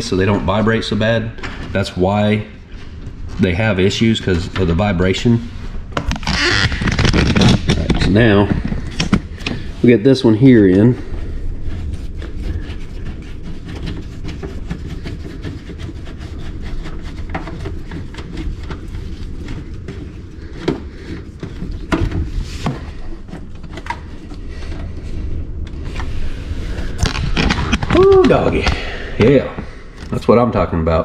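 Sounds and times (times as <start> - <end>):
steady low rumble: 0.0 - 16.6, 17.2 - 31.0.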